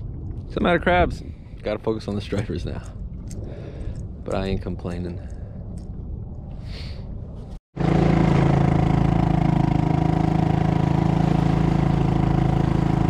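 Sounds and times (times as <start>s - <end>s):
small boat motor running: 7.8s - 13.0s.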